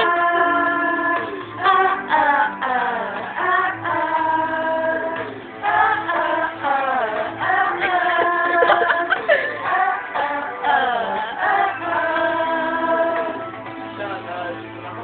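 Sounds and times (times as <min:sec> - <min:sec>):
young man singing karaoke: 0:00.0 - 0:05.3, 0:06.1 - 0:15.0
backing track: 0:00.0 - 0:15.0.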